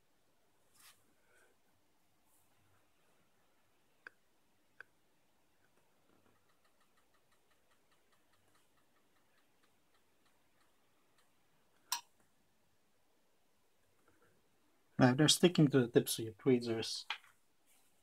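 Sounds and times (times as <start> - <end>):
tweezers clicking on circuit board: 6.3 - 12.1
faint even ticking: 6.3 - 12.2.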